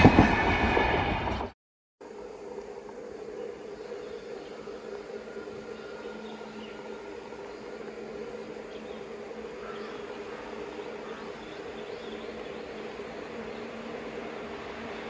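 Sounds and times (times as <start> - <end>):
electric locomotive hum: 0.0 - 15.0.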